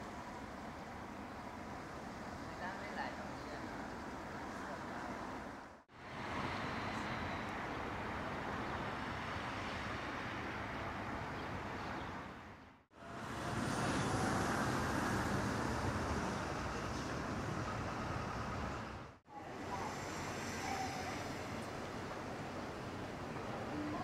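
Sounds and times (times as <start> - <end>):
road traffic noise: 0.0 - 24.0
steady outdoor rumble: 0.0 - 24.0.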